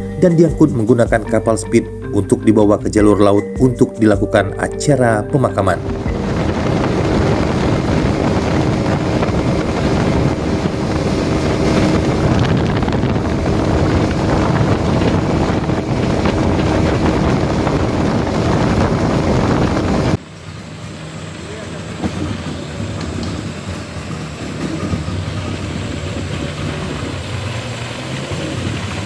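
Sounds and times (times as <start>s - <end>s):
outboard motor running: 0.0s - 29.0s
wind buffeting microphone: 5.1s - 20.2s, 21.9s - 29.0s
water rushing past hull: 5.6s - 29.0s.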